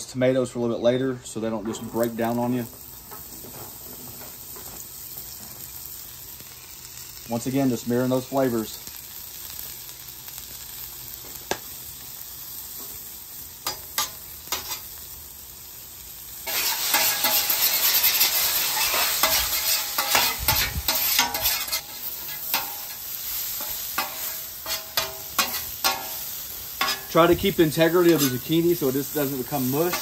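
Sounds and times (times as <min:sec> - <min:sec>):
vegetables sizzling in oil: 0:01.8 - 0:30.0
spatula scraping griddle: 0:13.6 - 0:14.9, 0:16.4 - 0:30.0.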